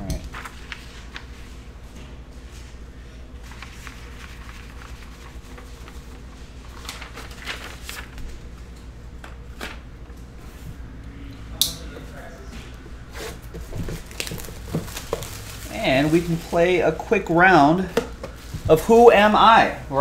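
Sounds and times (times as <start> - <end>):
low electrical hum: 0.0 - 20.0
paper rustling: 0.1 - 9.9, 13.1 - 19.3.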